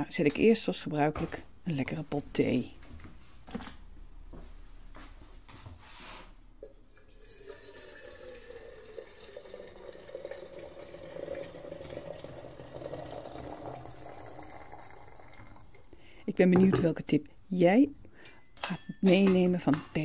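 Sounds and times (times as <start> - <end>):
water running from a tap: 7.0 - 15.8.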